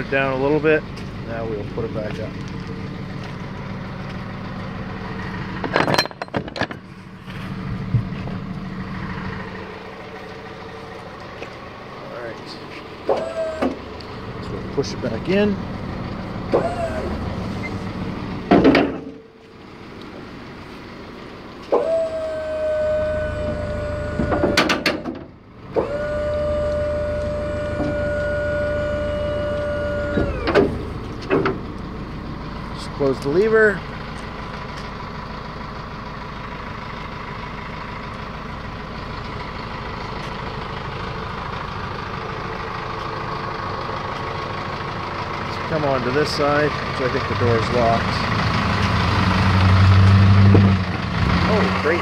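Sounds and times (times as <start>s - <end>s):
hydraulic lift humming: 3.6s - 14.8s, 15.6s - 20.1s, 21.6s - 32.4s
loud metal clanks: 5.6s - 6.9s, 18.5s - 19.2s, 24.3s - 25.3s.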